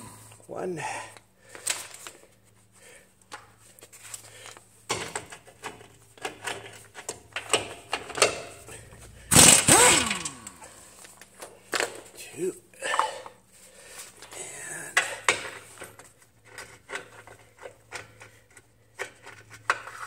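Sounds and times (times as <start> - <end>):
steady low hum: 8.4 - 16.4
hand tools clicking on metal: 9.3 - 10.7.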